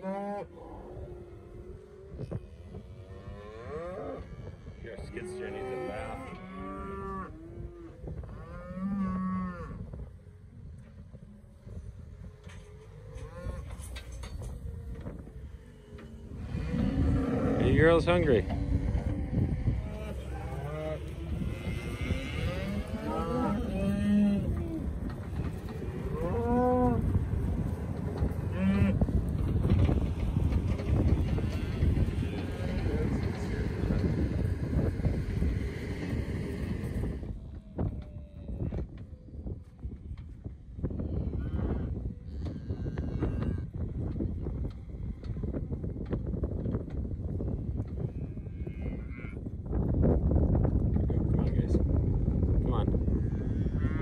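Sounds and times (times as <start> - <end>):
cattle mooing: 2.8 - 9.8, 15.5 - 29.0, 53.1 - 54.0.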